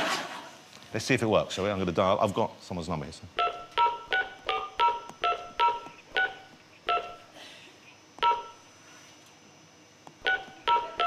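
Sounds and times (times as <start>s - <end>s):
telephone keypad beeps: 3.4s - 7.2s, 8.2s - 8.6s, 10.2s - 11.0s.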